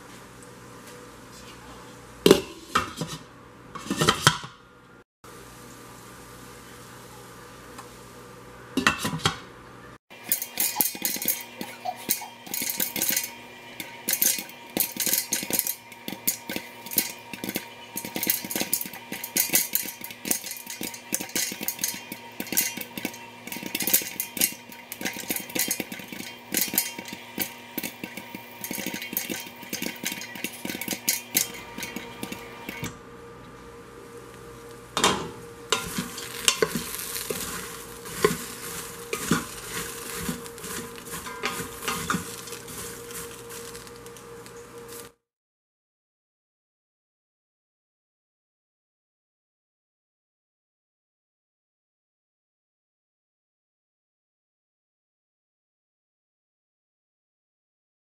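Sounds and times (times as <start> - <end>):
oil sizzling: 10.1 - 33.0, 33.9 - 45.2
popcorn popping against lid: 10.2 - 32.9, 35.7 - 44.6
wooden spoon scraping steel pot: 10.2 - 32.9, 35.7 - 44.0.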